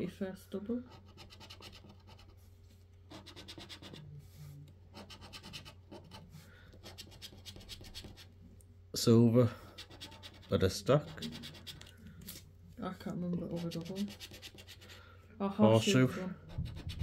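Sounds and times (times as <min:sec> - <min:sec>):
scratchcard scratching: 0:00.9 - 0:02.4, 0:03.1 - 0:04.2, 0:04.9 - 0:08.4, 0:09.7 - 0:12.4, 0:13.4 - 0:15.0, 0:16.4 - 0:17.0.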